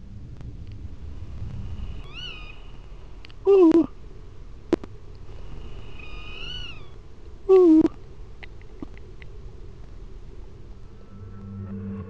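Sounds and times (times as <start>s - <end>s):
cat meowing: 2.0s - 2.6s, 6.0s - 7.9s.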